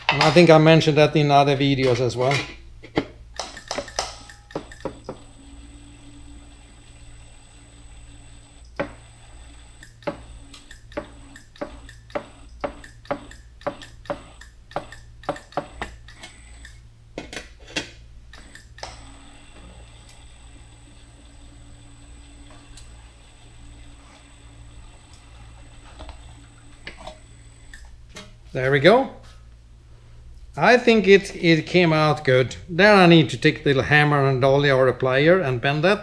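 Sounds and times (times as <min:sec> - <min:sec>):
low motor hum: 0:03.8 - 0:17.2, 0:18.1 - 0:28.6.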